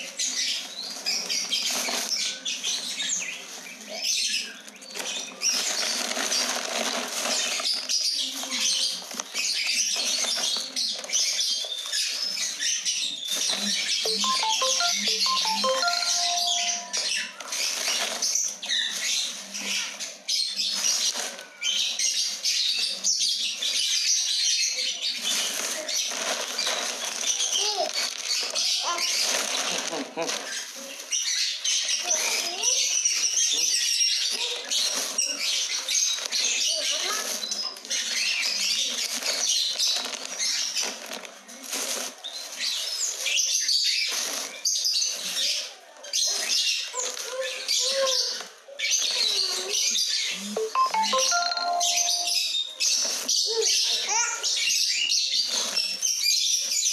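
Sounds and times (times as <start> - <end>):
plastic sack rustling: 5.0 - 9.3, 25.2 - 31.1
bird chirps: 14.1 - 17.2, 50.6 - 52.8.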